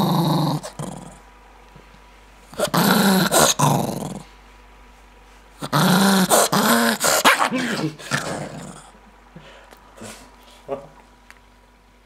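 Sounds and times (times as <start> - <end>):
dog growling angrily: 0.0 - 1.3, 2.5 - 4.3, 5.6 - 8.9.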